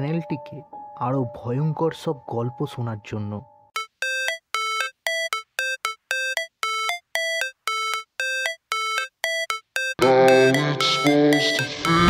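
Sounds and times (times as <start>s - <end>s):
synth beeping melody: 3.8s - 12.0s.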